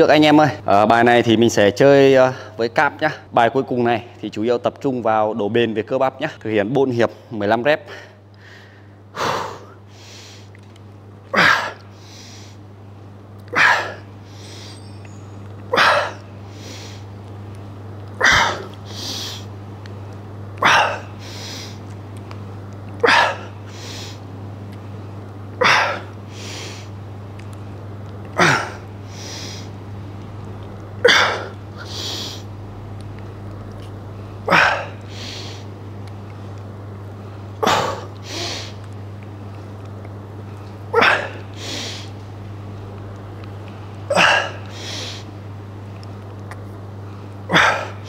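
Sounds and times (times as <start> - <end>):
steady low hum: 0.0 - 48.0.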